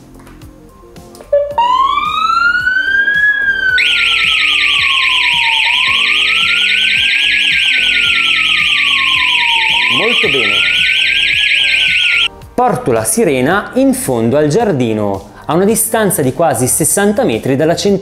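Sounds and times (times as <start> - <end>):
siren wailing: 1.3 - 12.3
fast high warble: 1.4 - 12.3.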